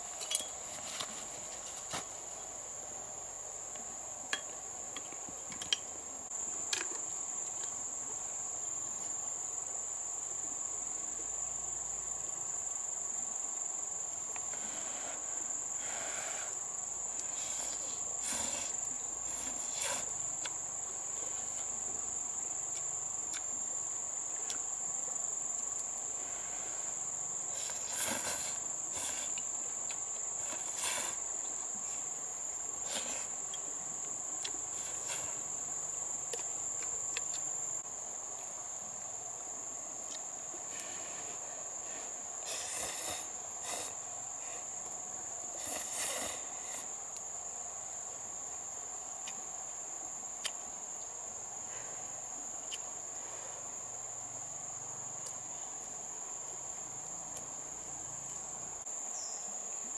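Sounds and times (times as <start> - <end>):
high-pitched insect chorus: 0.0 - 59.9
taps and rustles: 0.2 - 2.2.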